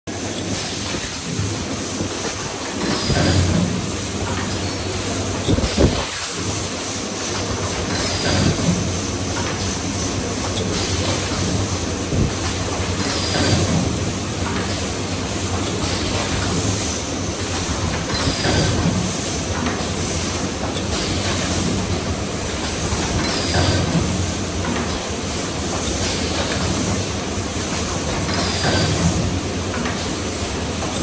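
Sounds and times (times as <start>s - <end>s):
forming machine clattering: 7.2s - 16.8s.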